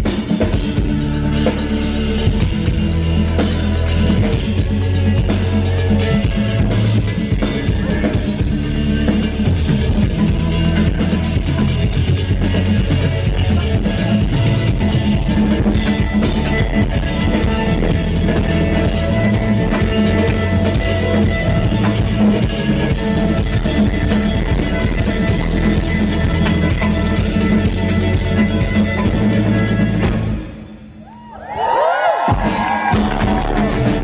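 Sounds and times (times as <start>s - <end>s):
keyboard: 0.0s - 30.8s
drum kit: 0.0s - 34.0s
guitar: 0.0s - 34.0s.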